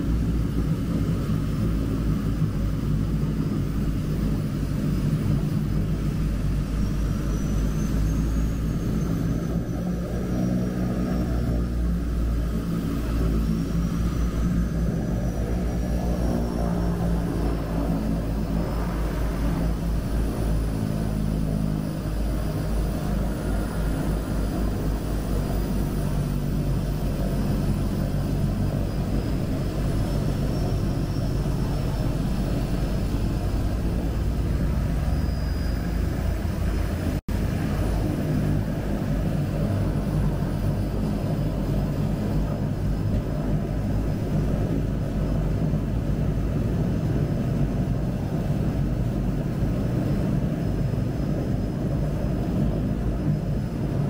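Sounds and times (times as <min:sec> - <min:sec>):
propeller engines droning: 0:00.0 - 0:54.0.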